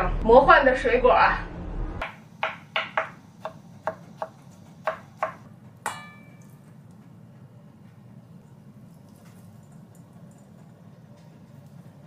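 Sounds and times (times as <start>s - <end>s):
knife chopping on plastic board: 2.0s - 5.5s
ringing clink: 5.9s - 6.6s.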